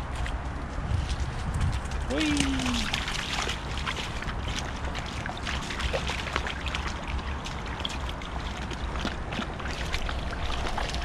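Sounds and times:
dog paws splashing in puddle: 0.0 - 11.0
low rumble: 8.2 - 11.0.

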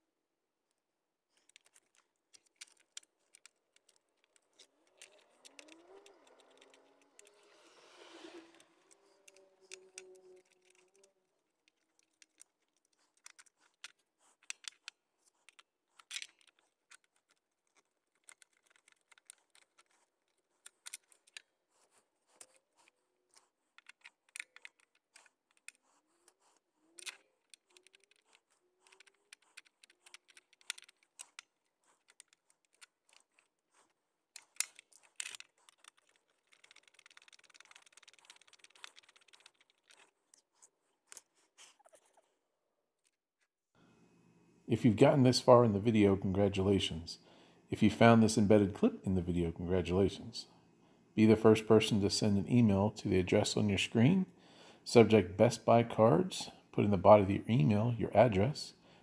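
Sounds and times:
screwdriver and plastic parts clicking: 1.4 - 7.6, 8.2 - 41.3
steady scraping: 1.4 - 18.0.

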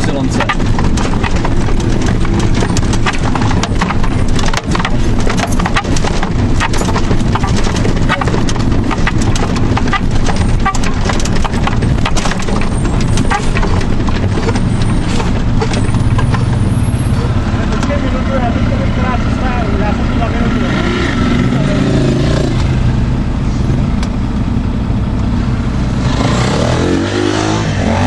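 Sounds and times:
cab rattling over bumps: 0.0 - 28.0
diesel truck engine droning: 0.0 - 28.0.

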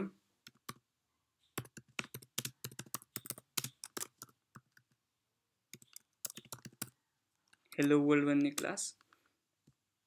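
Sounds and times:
computer keyboard typing: 0.4 - 0.8, 1.5 - 5.0, 5.7 - 8.8.

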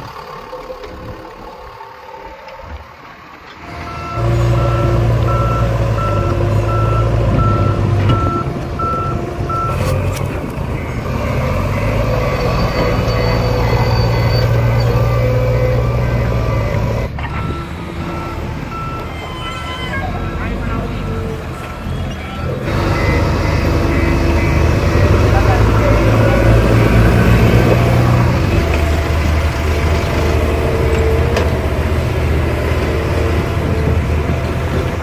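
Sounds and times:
diesel engine running: 0.0 - 35.0
reversing alarm beeping: 3.6 - 31.5.

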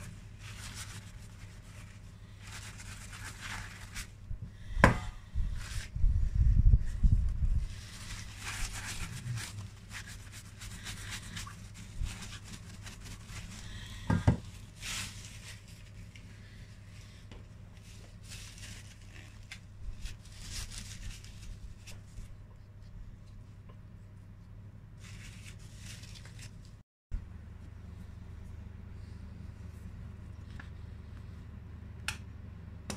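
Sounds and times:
rubbing and rustling handling noises: 0.0 - 26.8
low hum: 27.2 - 32.9.

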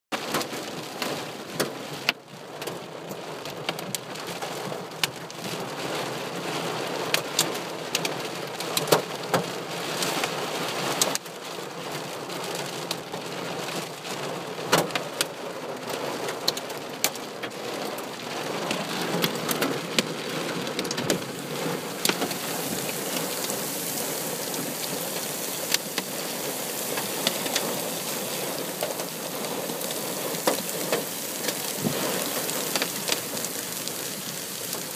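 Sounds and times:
heavy rain hissing on a truck: 0.2 - 34.9
hailstones striking metal and glass: 20.8 - 34.9.

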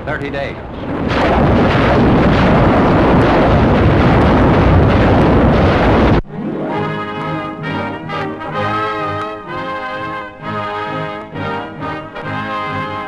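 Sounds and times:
rockets firing roar: 0.6 - 13.0
brass fanfare: 6.4 - 13.0.

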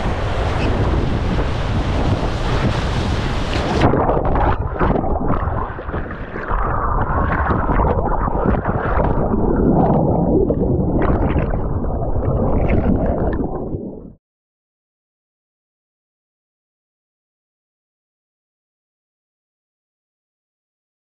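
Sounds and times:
muffled underwater river churning: 0.0 - 14.2.

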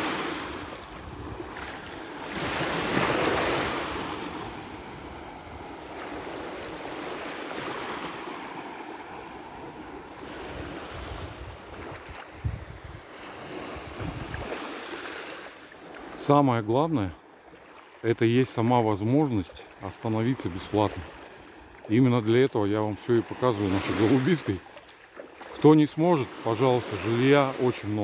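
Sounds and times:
wind rumbling on microphone: 0.0 - 6.9, 9.6 - 14.7
small waves washing on shore: 0.0 - 28.0.

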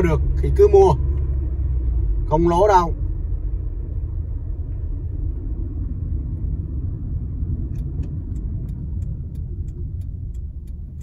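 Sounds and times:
turn signal ticking: 0.0 - 2.6, 4.4 - 11.0
car road rumble: 0.0 - 11.0.

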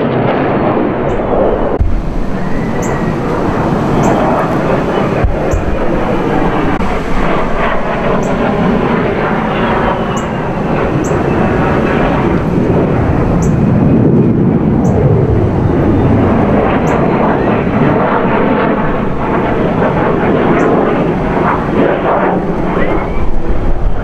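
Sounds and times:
fighter jet roaring past: 0.0 - 24.0
faint falling whine: 1.0 - 14.0.

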